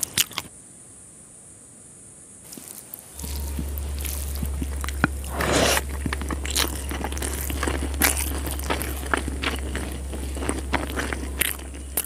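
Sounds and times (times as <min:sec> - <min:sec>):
chewing with small clicks: 0:00.0 - 0:00.5, 0:05.8 - 0:12.0
wet mouth burst: 0:05.3 - 0:06.0.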